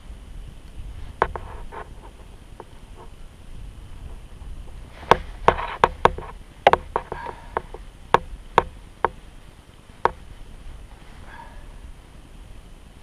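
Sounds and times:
sharp knocks and clicks: 1.2 - 1.9, 5.0 - 9.2.

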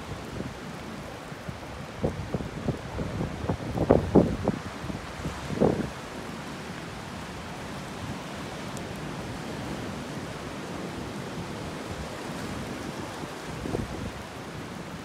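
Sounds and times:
stormy sea surging and foaming: 0.0 - 15.0
wind buffeting microphone: 1.8 - 6.0.

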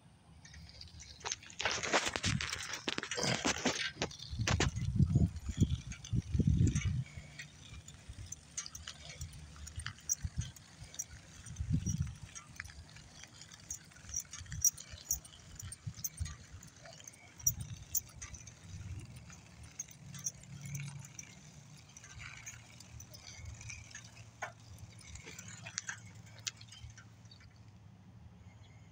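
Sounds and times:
harness jingling: 0.4 - 27.6
dog claws clicking on asphalt: 0.4 - 27.7
wind rumble on microphone: 1.8 - 19.9.

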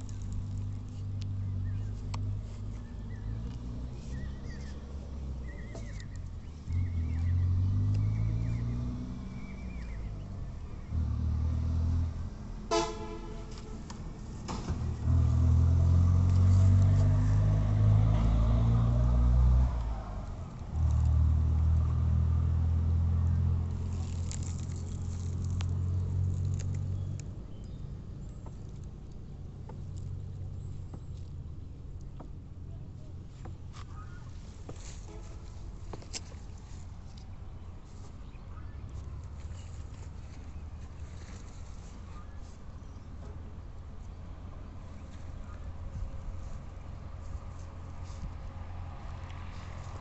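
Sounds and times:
passing motor vehicles: 0.0 - 50.0
car horn toot: 12.7 - 13.9, 35.0 - 35.4.

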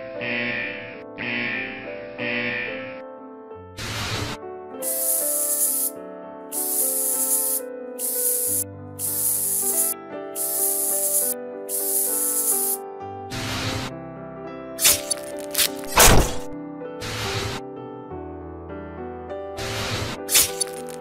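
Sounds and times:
background music: 0.0 - 21.0
spray bottle spritzing: 3.8 - 5.9, 6.5 - 12.8, 14.8 - 17.6, 19.6 - 21.0.

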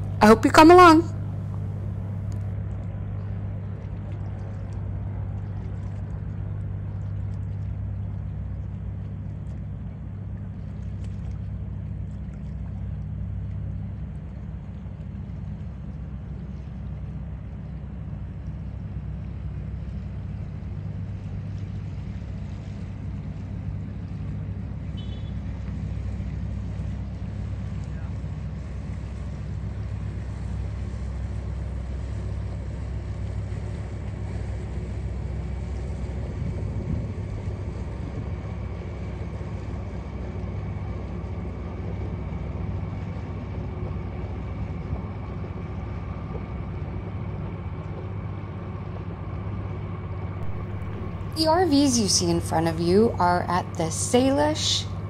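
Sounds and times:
floatplane engine droning: 0.0 - 55.0.

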